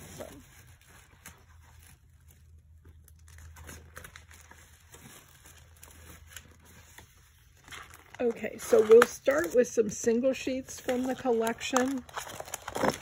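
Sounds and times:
paper sheets rustling: 0:03.4 - 0:13.0.

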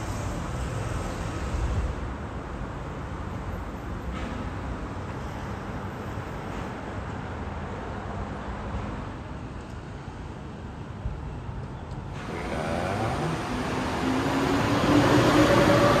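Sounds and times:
low rumble of vehicle noise: 0:00.0 - 0:16.0
engine hum rising in pitch: 0:12.2 - 0:16.0.

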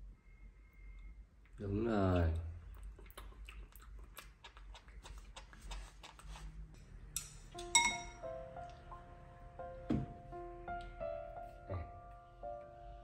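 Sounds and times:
music with ringing notes: 0:07.5 - 0:13.0.

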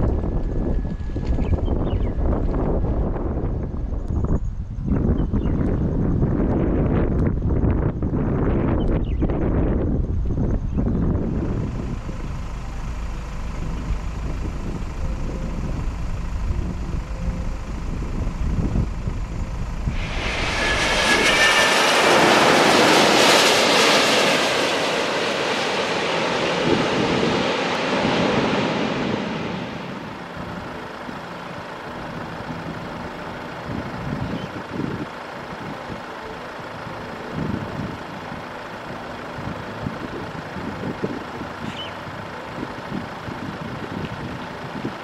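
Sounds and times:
wind gusts thumping microphone: 0:00.0 - 0:12.6, 0:13.4 - 0:30.2
jet airliner passing overhead: 0:04.9 - 0:42.6
heavy rain hissing: 0:19.9 - 0:23.1.

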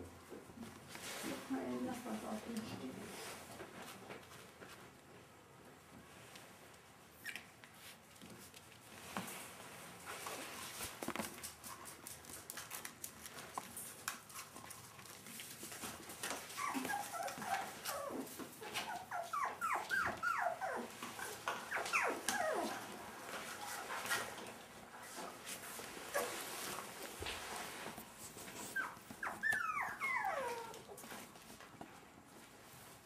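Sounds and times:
soft scratching and rustling: 0:00.2 - 0:33.0
puppies whimpering: 0:16.5 - 0:22.9, 0:28.7 - 0:30.8.

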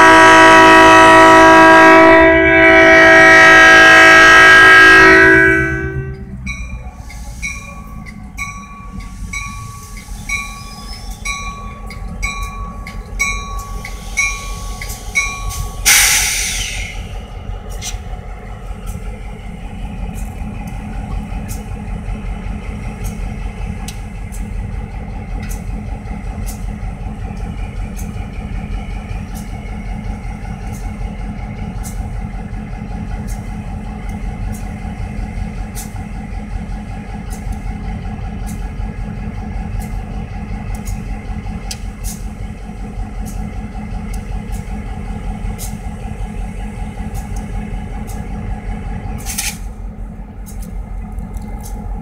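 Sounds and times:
diesel locomotive rumbling: 0:00.0 - 0:52.0
crossing bell dinging: 0:05.2 - 0:16.0
loud air hiss: 0:13.7 - 0:17.1.

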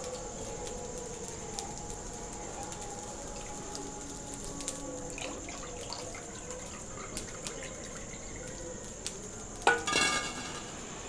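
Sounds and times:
liquid pouring and dripping: 0:02.4 - 0:11.0.

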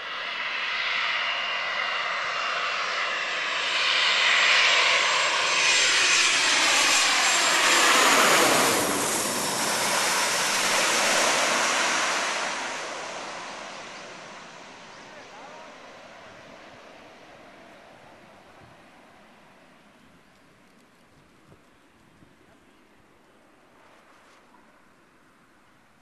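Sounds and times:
jet passing overhead whining: 0:00.0 - 0:20.0.

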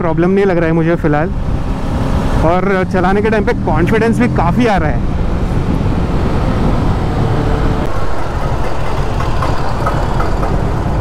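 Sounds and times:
wind and road noise: 0:00.0 - 0:11.0
motorcycle engine running: 0:07.6 - 0:11.0.

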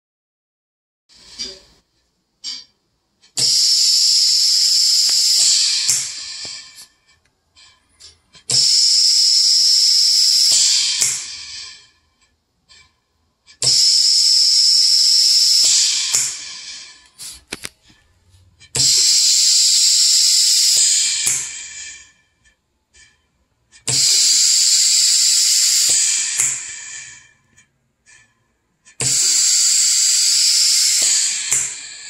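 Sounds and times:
valve clicks: 0:03.4 - 0:06.9, 0:13.6 - 0:17.8, 0:18.8 - 0:22.0, 0:23.9 - 0:27.2, 0:29.0 - 0:32.0
compressed air hissing: 0:03.4 - 0:07.0, 0:08.5 - 0:12.0, 0:13.6 - 0:17.7, 0:18.8 - 0:22.2, 0:23.9 - 0:27.4, 0:29.0 - 0:32.0.

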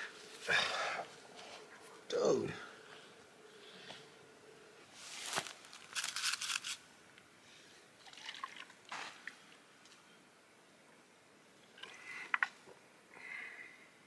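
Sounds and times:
water sloshing in gourd: 0:08.0 - 0:09.0.

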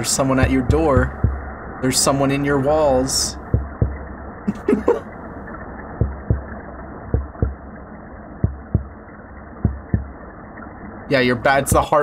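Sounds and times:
fish knocking pulses underwater: 0:03.4 - 0:04.0, 0:06.0 - 0:06.5, 0:07.1 - 0:07.6, 0:08.4 - 0:09.0, 0:09.6 - 0:10.1.

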